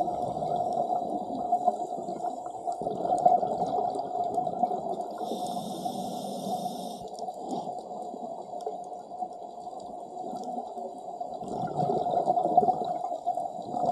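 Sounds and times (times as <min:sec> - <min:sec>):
underwater bubbling: 0:00.0 - 0:13.9
scuba regulator breathing: 0:05.2 - 0:07.1.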